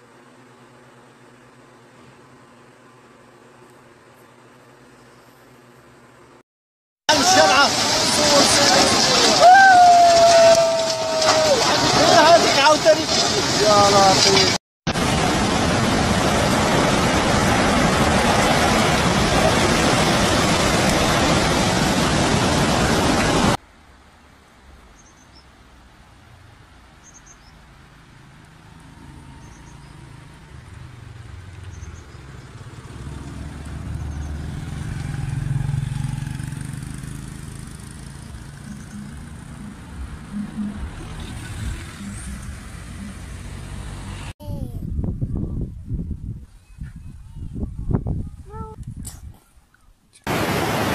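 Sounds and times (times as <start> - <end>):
floodwater rushing: 7.1 - 23.6, 50.3 - 50.9.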